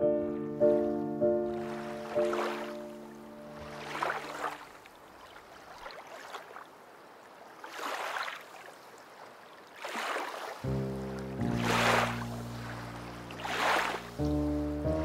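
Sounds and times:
background music chords: 0.0 - 3.8, 10.7 - 15.0.

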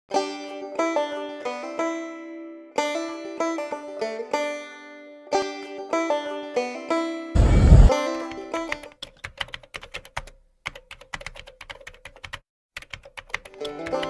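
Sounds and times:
banjo tune: 0.1 - 7.3, 7.9 - 9.0, 13.5 - 14.0
keyboard typing clicks: 9.0 - 14.0.

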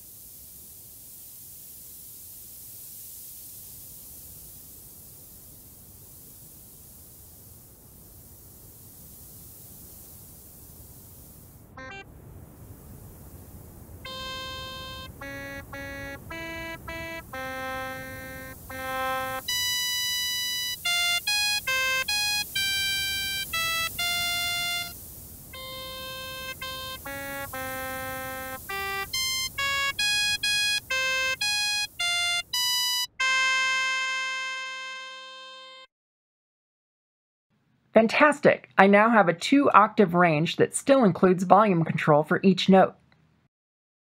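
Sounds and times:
synthesizer notes: 11.8 - 12.0, 14.0 - 25.0, 25.6 - 35.8.

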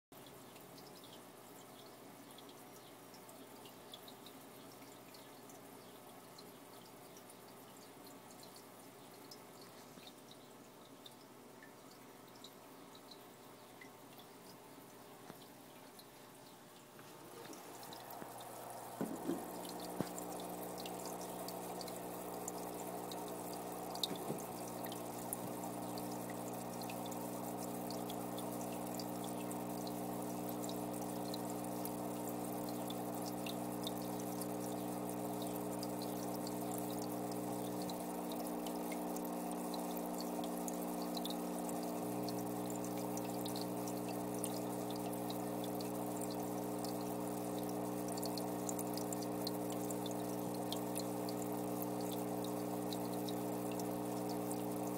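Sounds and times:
water dripping and trickling: 0.2 - 54.9
steady hum: 17.0 - 54.9.

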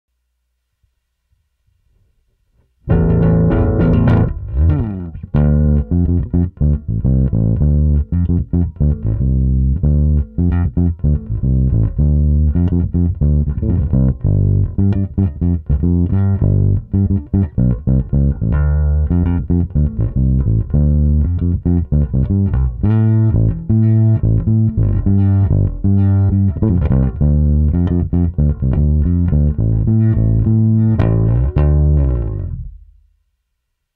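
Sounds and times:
electric bass guitar plucked: 2.8 - 33.1.

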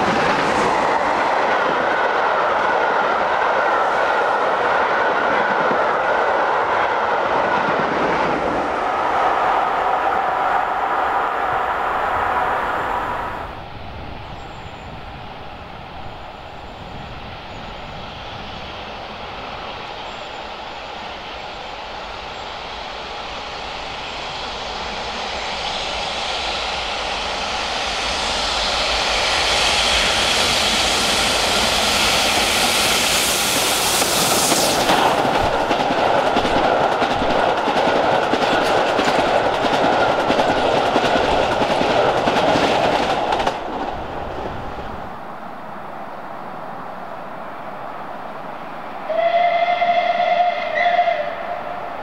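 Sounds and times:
steam locomotive passing: 0.0 - 52.0
train wheels clattering on rails: 16.7 - 44.2.

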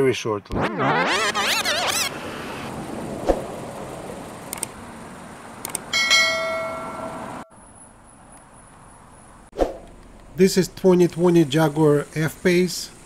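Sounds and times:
notification bell ding: 6.0 - 7.5.

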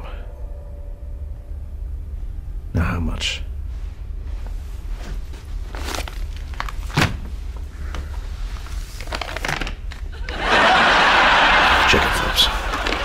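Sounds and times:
low room hum: 0.0 - 13.0
soft rustles: 3.6 - 9.6.

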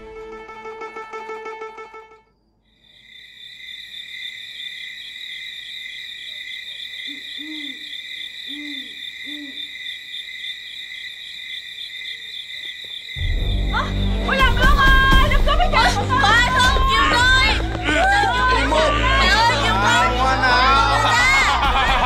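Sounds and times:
insects chirring: 2.2 - 14.3
owl hooting: 6.3 - 9.8.

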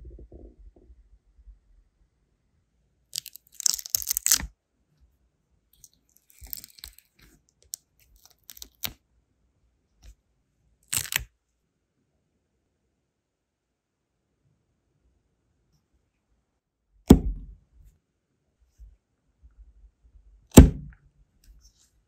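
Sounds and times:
sealing wax crackling and tearing: 3.2 - 4.5, 5.8 - 9.0, 10.9 - 11.3.

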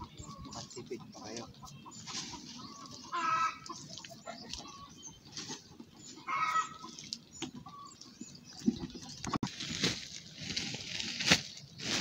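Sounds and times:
chicken clucking: 0.0 - 9.5.

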